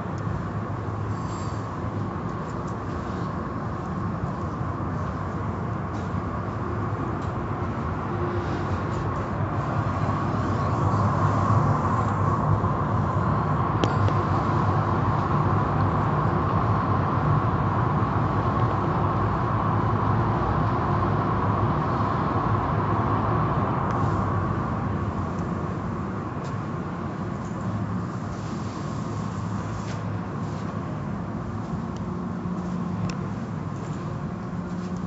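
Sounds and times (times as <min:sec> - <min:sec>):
car wash brushes and spray: 0:24.0 - 0:35.0.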